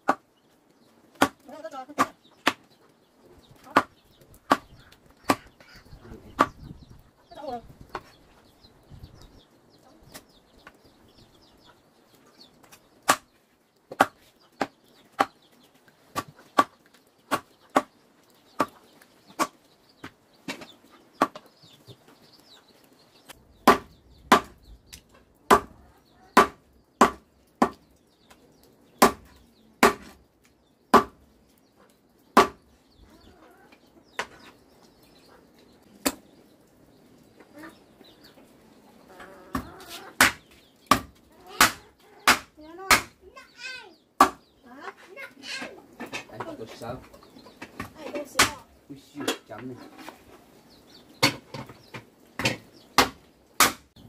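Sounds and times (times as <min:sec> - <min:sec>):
blade chopping into wood: 0:29.0 - 0:30.2, 0:52.4 - 0:53.9.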